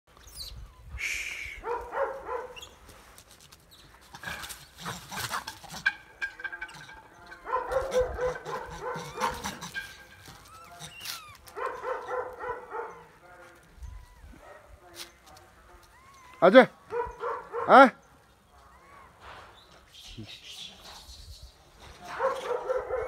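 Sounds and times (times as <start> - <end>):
puppy barking: 1.6 - 2.6, 7.4 - 13.2, 16.9 - 17.9, 22.1 - 23.0.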